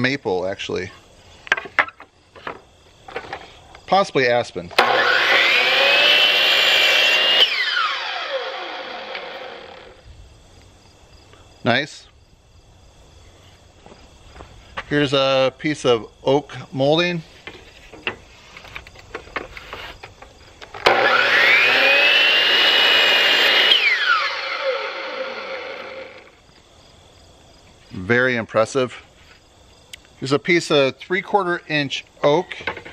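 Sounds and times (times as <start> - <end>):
miter saw cutting wood: 4.8 - 10.0, 20.7 - 26.4
saw motor whine winding down: 4.8 - 10.1, 20.7 - 26.4.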